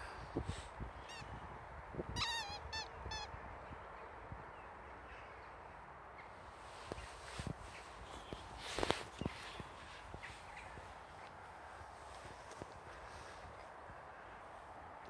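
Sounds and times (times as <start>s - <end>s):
rubber squeaky toy squeaking: 2.2s - 3.3s.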